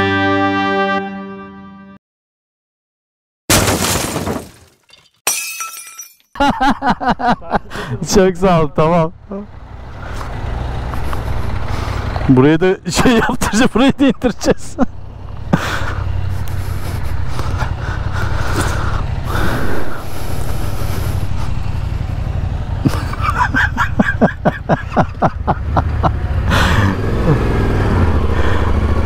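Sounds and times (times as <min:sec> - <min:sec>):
motorcycle engine rumble: 0:09.1 - 0:29.0.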